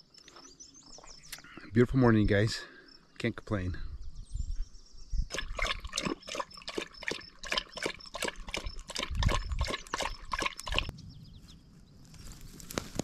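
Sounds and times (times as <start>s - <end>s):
dog lapping water: 5.3s - 10.9s.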